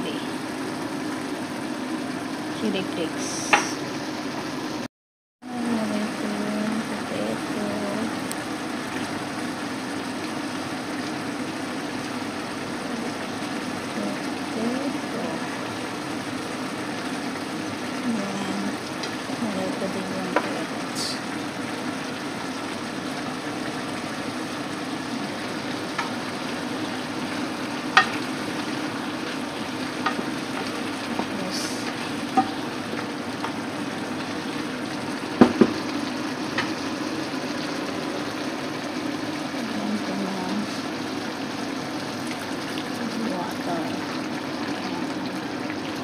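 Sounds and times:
curry sizzling in a pan: 0.0s - 4.9s, 5.5s - 46.0s
wooden spoon knocking against pan: 35.4s - 35.8s.

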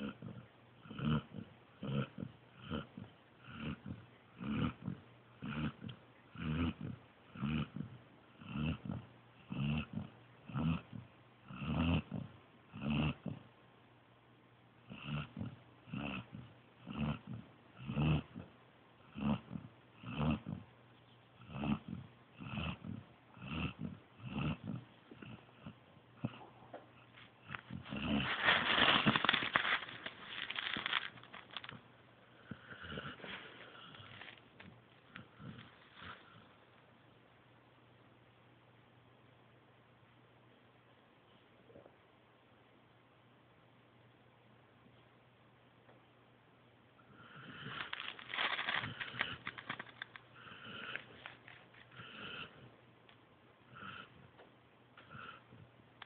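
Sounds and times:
puppy snoring: 0.0s - 13.6s, 14.8s - 20.8s, 21.4s - 36.6s, 47.0s - 52.8s, 53.6s - 54.4s, 55.0s - 55.7s.

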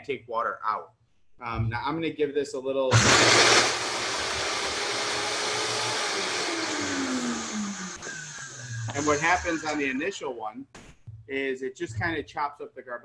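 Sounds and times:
blender whirring: 2.9s - 10.0s.

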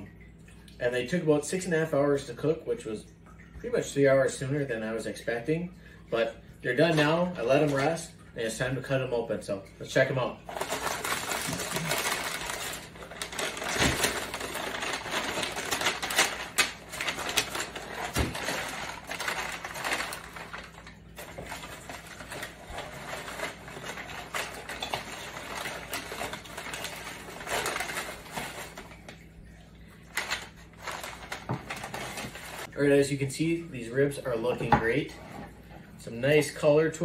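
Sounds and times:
paper and foil crinkling: 10.4s - 29.2s, 30.0s - 32.7s.

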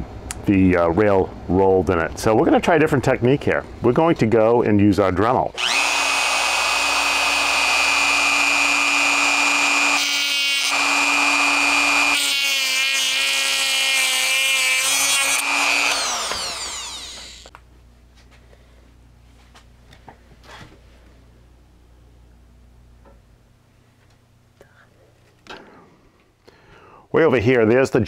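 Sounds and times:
rotary tool cutting metal: 5.6s - 17.5s.

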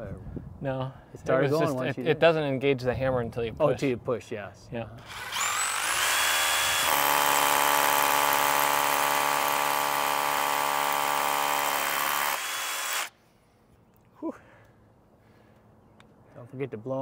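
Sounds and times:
rotary hammer drilling into block wall: 5.0s - 13.1s.

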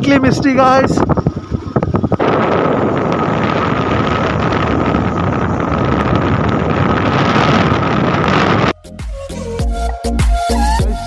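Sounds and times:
motorcycle running: 0.0s - 8.7s
wind buffeting microphone: 0.0s - 8.8s
steady high whine: 1.0s - 8.8s.

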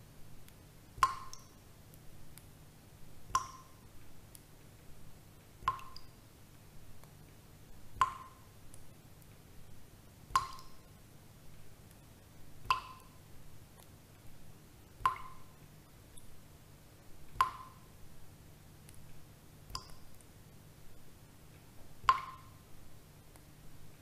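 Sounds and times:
faint ticks: 0.4s - 2.6s, 10.3s - 11.0s, 11.8s - 14.4s, 18.8s - 22.6s.

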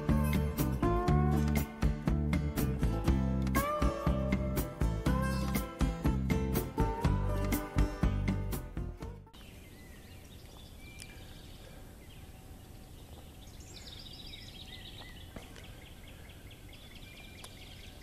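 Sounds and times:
birds calling: 9.3s - 18.0s.

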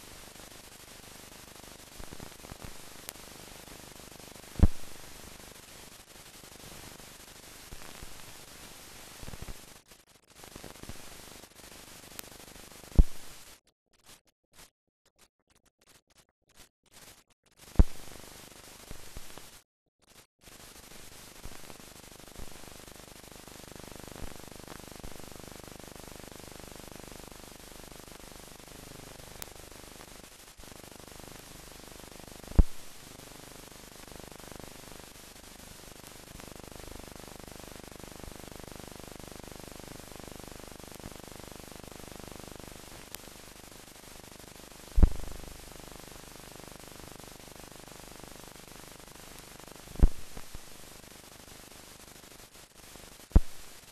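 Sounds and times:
steady film hiss: 0.0s - 13.6s, 17.0s - 53.9s
sharp pops: 45.0s - 45.4s, 53.3s - 53.6s.

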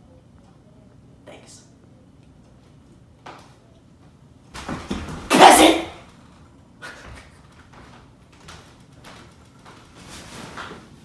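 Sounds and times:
man shouting: 5.3s - 6.0s
faint knocks and rustles: 6.2s - 11.0s.

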